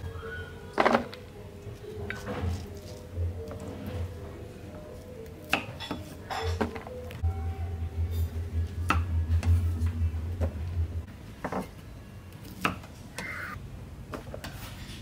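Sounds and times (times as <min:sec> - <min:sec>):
low hum: 0:07.0 - 0:13.6.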